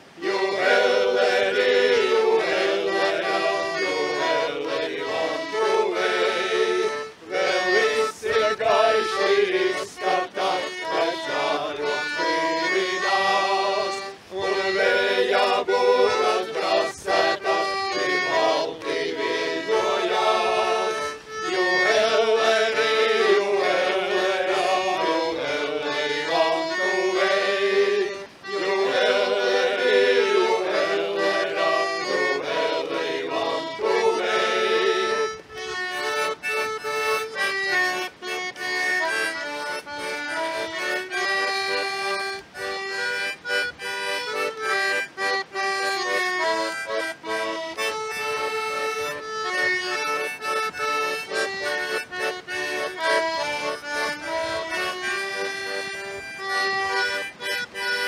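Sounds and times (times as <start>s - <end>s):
button accordions playing: 0.0s - 58.0s
men singing: 0.2s - 35.4s.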